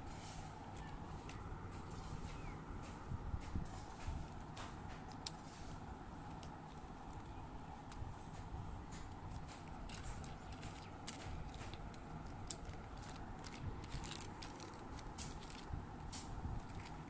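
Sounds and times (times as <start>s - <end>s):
plastic toys clicking: 9.0s - 15.7s.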